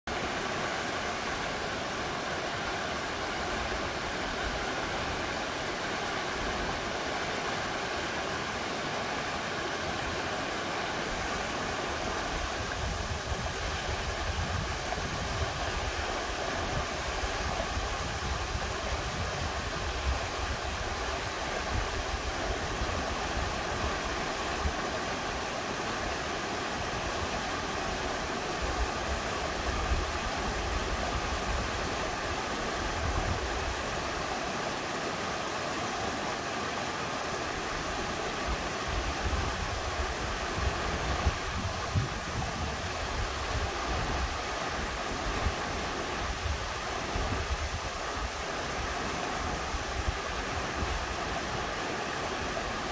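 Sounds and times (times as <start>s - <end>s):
mountain stream rushing: 0.1s - 52.9s
wind buffeting microphone: 12.2s - 23.8s, 38.8s - 48.4s.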